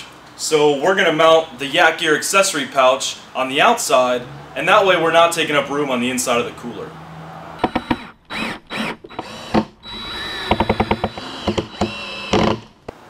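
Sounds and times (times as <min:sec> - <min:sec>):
cordless drill whining: 0:07.6 - 0:12.9.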